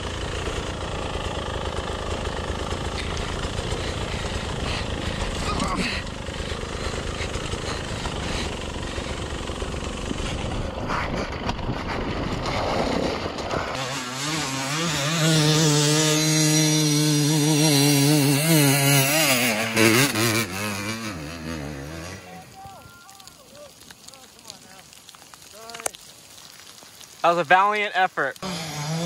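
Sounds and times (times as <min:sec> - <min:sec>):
dirt bike engine revving: 0:00.0 - 0:22.6, 0:28.4 - 0:29.0.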